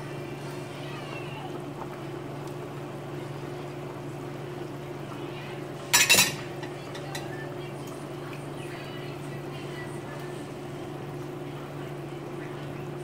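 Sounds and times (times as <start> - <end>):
stew bubbling in a pot: 0.0 - 13.0
dishware clattering: 5.9 - 7.3.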